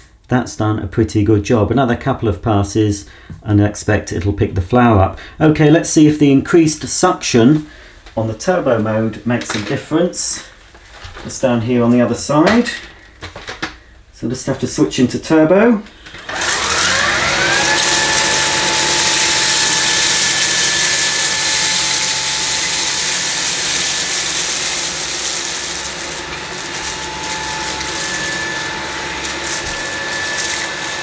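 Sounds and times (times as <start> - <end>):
stick vacuum motor whine: 16.0 - 31.0
grains rattling on hard tiles: 17.5 - 31.0.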